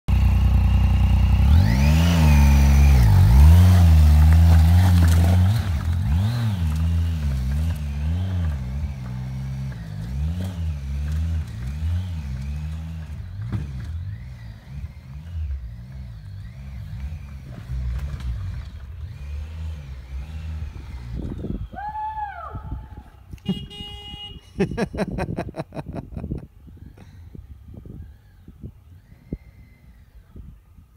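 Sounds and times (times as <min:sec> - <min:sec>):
motorcycle engine revving: 0:00.1 - 0:21.7.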